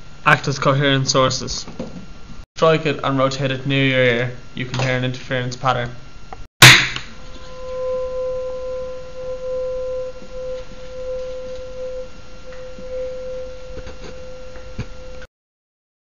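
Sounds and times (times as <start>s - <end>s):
tuning fork struck: 6.6s - 15.3s
tuning fork ringing pure tone: 7.0s - 15.3s.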